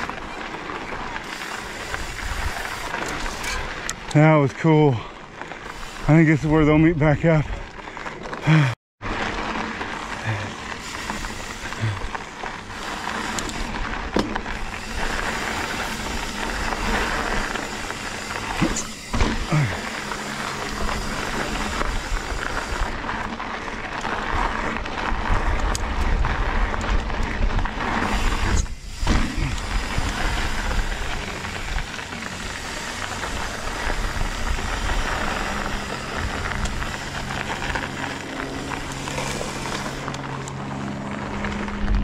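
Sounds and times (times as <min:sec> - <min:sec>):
wind and tyre noise: 0:00.0 - 0:42.0
bike knocks and rattles: 0:12.7 - 0:22.1.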